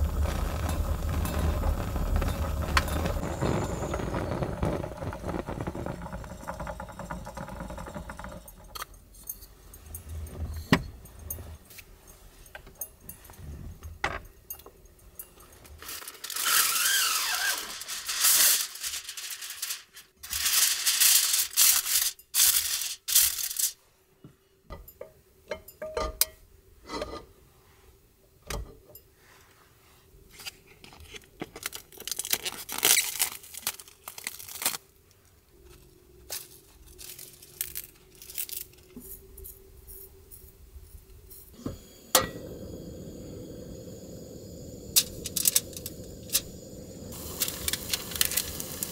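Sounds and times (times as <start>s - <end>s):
gas stove hissing: 0.0s - 8.6s, 15.9s - 23.7s, 41.5s - 48.9s
aluminium foil rustling: 15.7s - 23.8s, 30.4s - 39.2s, 45.0s - 46.5s, 47.1s - 48.9s.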